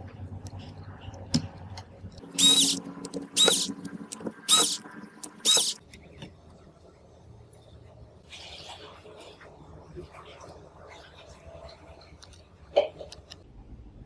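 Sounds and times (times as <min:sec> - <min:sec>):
screw squeaking: 0:02.4 - 0:02.8, 0:03.4 - 0:03.8, 0:04.4 - 0:05.8.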